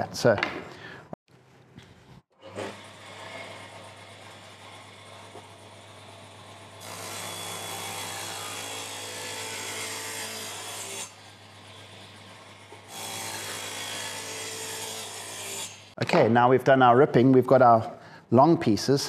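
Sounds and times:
table saw cutting plywood: 2.4s - 16.0s.

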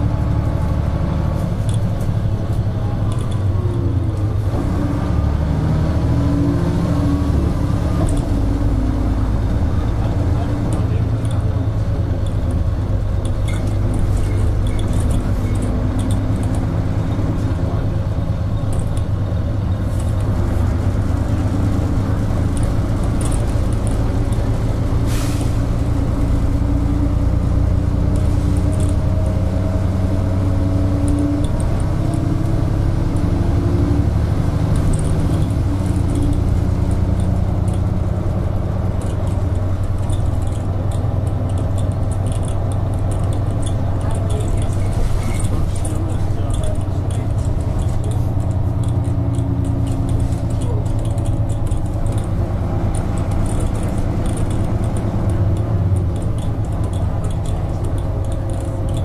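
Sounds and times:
bus engine drone with whine: 0.0s - 59.0s
short hiss: 25.1s - 25.6s.

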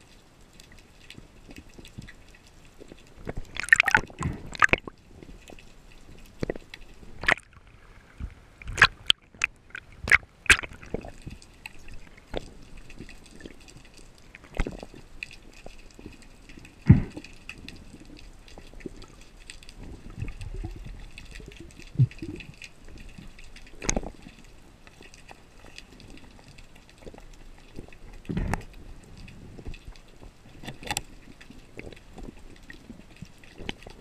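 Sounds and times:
faint steady crackle: 0.0s - 34.0s
dull underwater knocks and thumps: 3.2s - 5.4s, 6.4s - 11.4s, 16.8s - 17.4s, 28.1s - 31.1s.

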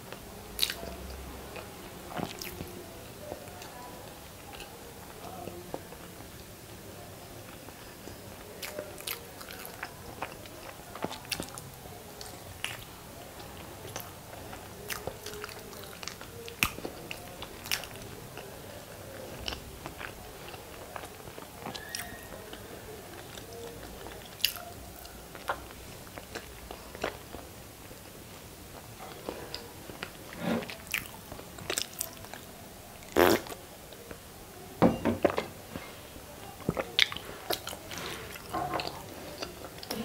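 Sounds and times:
person chewing food: 23.1s - 27.5s, 28.7s - 34.0s, 36.6s - 40.0s.

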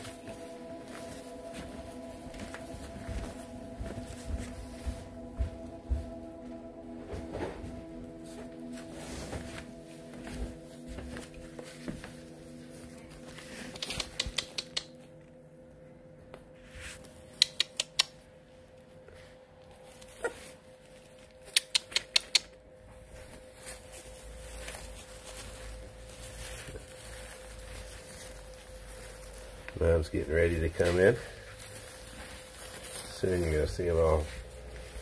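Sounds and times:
faint steady hum: 0.0s - 35.0s
puppies scrambling clicks and scratches: 13.4s - 15.0s.

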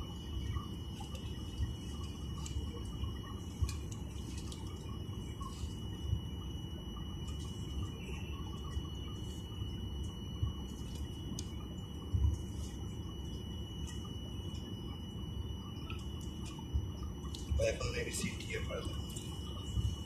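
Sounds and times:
jet engine cabin rumble: 15.6s - 20.0s.

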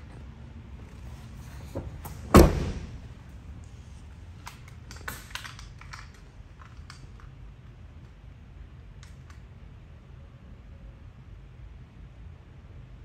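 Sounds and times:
heavy footstep thump on metal: 1.7s - 3.0s.

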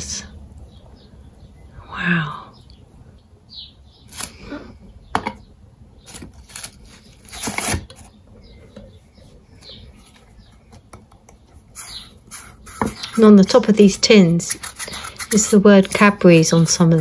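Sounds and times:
paper rustling: 6.1s - 8.1s.

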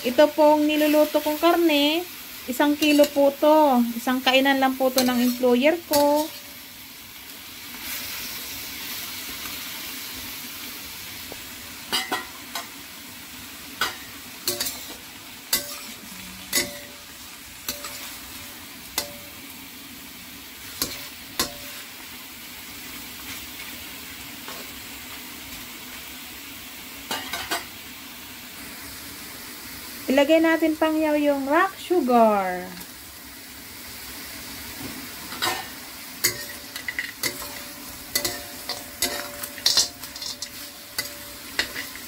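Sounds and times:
meat sizzling in a wok: 0.0s - 42.0s
metal spatula scraping a wok: 4.8s - 6.7s, 13.8s - 19.4s, 20.6s - 21.9s, 35.3s - 42.0s.

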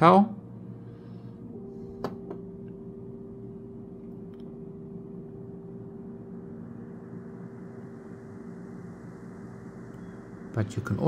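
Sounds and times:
faint steady tone: 0.0s - 11.0s
low room hum: 0.0s - 11.0s.

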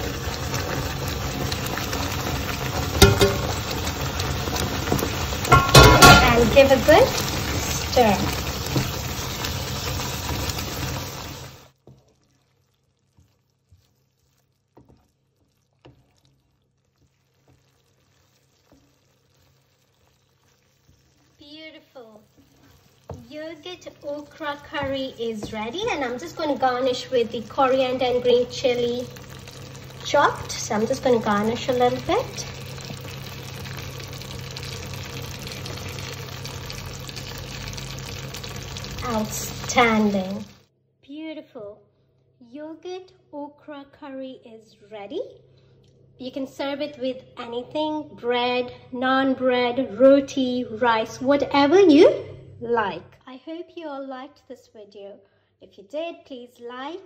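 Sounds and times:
pan sizzling hiss: 0.0s - 11.8s, 17.0s - 40.6s
wooden spoon stirring in pan: 0.0s - 40.6s.

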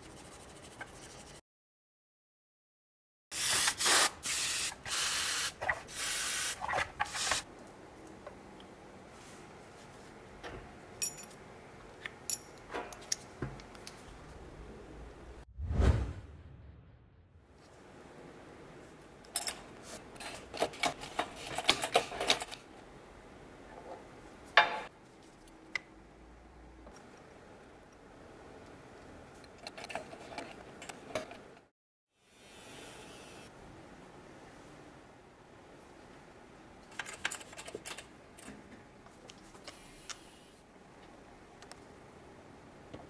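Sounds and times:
light metallic taps and clinks: 11.0s - 11.4s.

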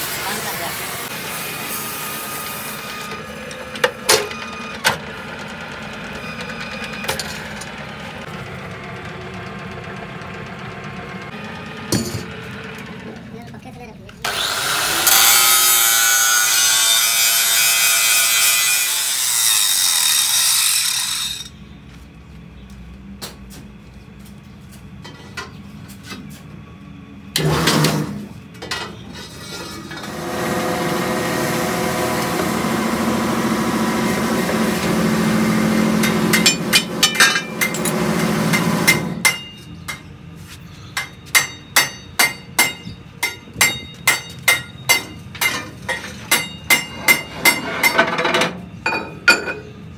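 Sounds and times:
angle grinder cutting steel: 0.0s - 4.0s, 14.2s - 21.6s, 29.2s - 39.2s
machine running steadily: 0.0s - 15.3s, 21.2s - 40.4s
sharp metal knocks: 41.0s - 49.7s.

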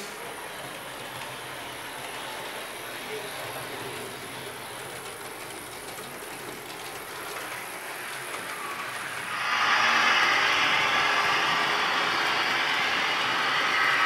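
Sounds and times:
model train wheels clattering: 0.0s - 9.4s
model train motor whir: 0.0s - 14.0s.

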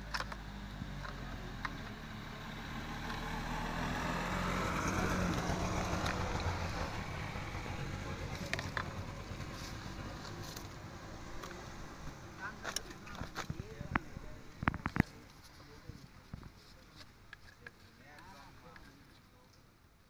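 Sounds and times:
motor vehicle passing: 0.0s - 15.0s.

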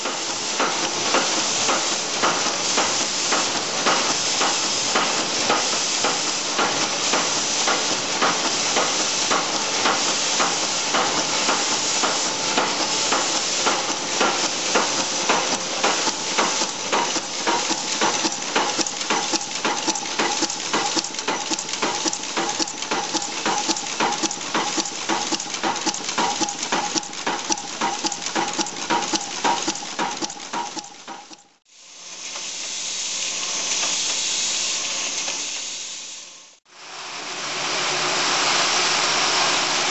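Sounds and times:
press clattering metal on metal: 0.0s - 31.5s
rushing machine noise: 0.0s - 31.6s.

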